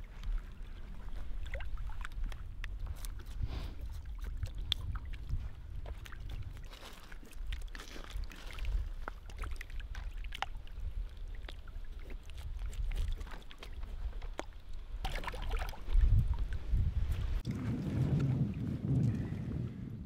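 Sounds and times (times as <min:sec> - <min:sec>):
water splashing: 0:00.0 - 0:16.7.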